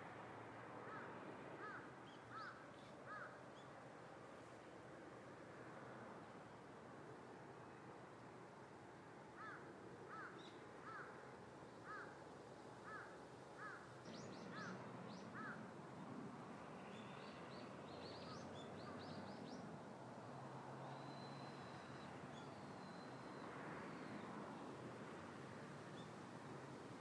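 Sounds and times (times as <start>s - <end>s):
crow cawing: 0.8s - 3.4s, 9.4s - 11.2s, 11.8s - 12.2s, 12.8s - 13.9s, 15.4s - 15.6s.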